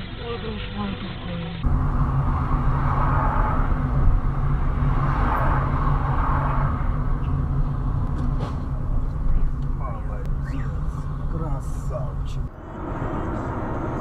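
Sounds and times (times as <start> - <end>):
car engine hum: 0.0 - 14.0
road rumble: 0.0 - 14.0.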